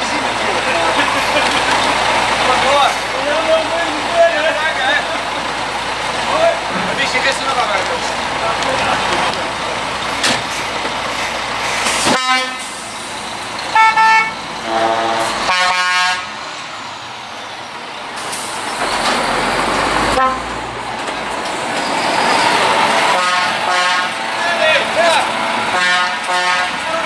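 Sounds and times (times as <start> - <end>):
truck engines driving slowly: 0.0 - 27.0
lorry horns honking: 12.0 - 12.8, 13.7 - 16.4, 20.0 - 20.7, 22.8 - 24.9, 25.6 - 27.0.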